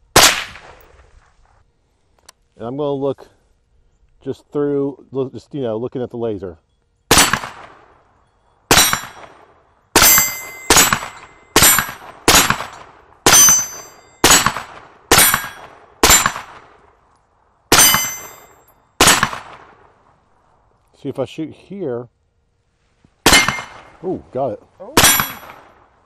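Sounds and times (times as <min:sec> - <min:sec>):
rifle shots: 0:00.1 - 0:00.9, 0:07.1 - 0:07.9, 0:08.7 - 0:16.8, 0:17.7 - 0:20.0, 0:23.2 - 0:24.0, 0:25.0 - 0:25.8
metallic ring: 0:08.2 - 0:09.3, 0:10.0 - 0:12.0, 0:13.3 - 0:14.5, 0:15.1 - 0:16.3, 0:17.7 - 0:19.0, 0:25.0 - 0:25.6.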